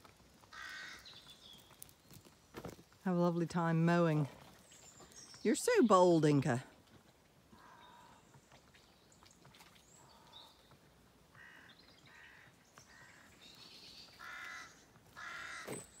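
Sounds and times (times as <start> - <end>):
crows cawing: 0.4 - 1.2, 7.5 - 8.2, 11.3 - 13.3, 14.2 - 15.8
small birds chirping: 0.5 - 3.0, 3.6 - 6.7, 7.6 - 16.0.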